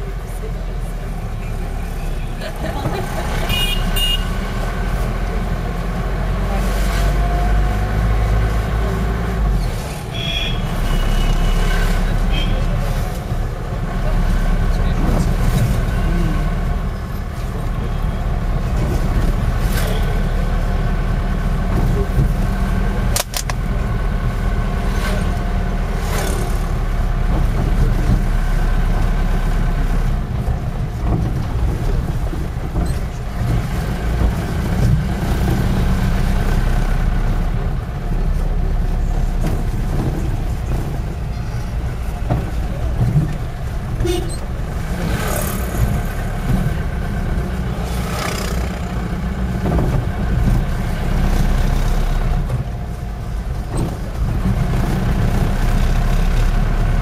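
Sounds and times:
car engine and road noise: 0.0 - 57.0
sharp click: 23.1 - 23.6.

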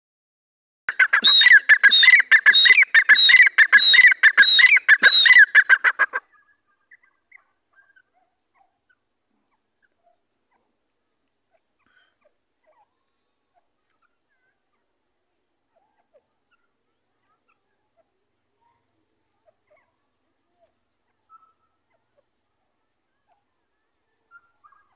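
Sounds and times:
bird calling shrill notes: 0.9 - 7.1.

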